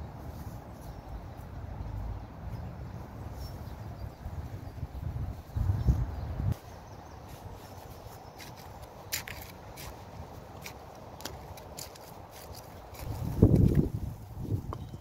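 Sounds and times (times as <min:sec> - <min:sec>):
hand trowel scraping soil: 0:07.2 - 0:14.2.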